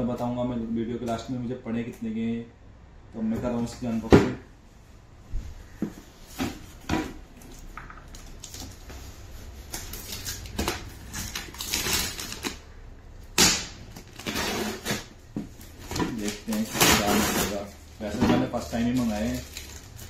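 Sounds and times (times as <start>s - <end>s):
packing tape slit and pulled off box: 9.6s - 12.6s, 13.3s - 17.7s.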